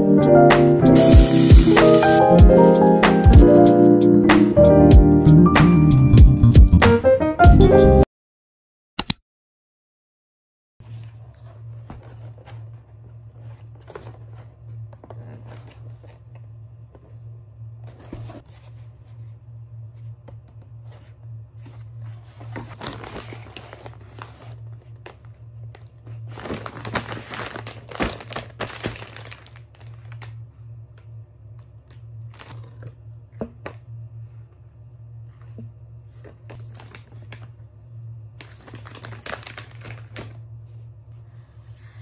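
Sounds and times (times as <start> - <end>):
steady low hum: 10.8 - 42.0
plastic packaging crinkling: 22.5 - 30.4, 32.2 - 32.9, 36.4 - 37.5, 38.4 - 40.4.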